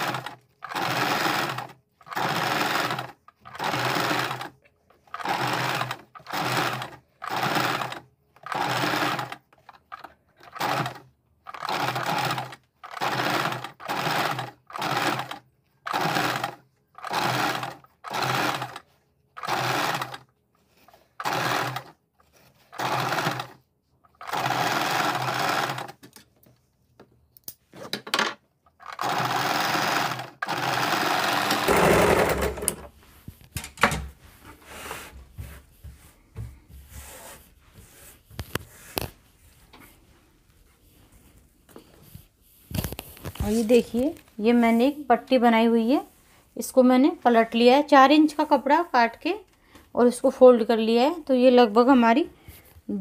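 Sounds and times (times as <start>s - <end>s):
electric sewing machine stitching: 0.0s - 26.0s, 28.8s - 32.9s.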